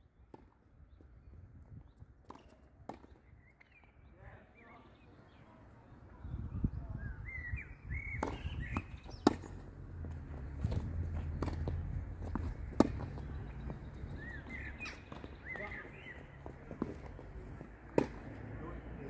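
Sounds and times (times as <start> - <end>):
bird chirping: 3.2 - 9.7, 12.3 - 16.5
tennis ball struck by rackets: 8.1 - 17.2, 17.8 - 18.4
tennis ball bouncing: 8.1 - 18.4.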